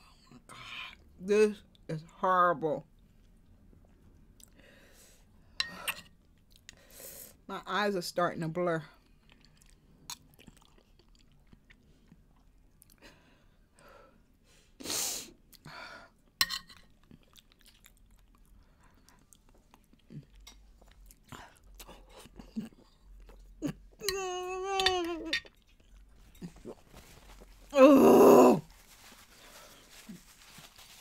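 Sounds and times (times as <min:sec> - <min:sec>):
chewing and smacking: 0:09.0 - 0:13.0, 0:16.8 - 0:23.6.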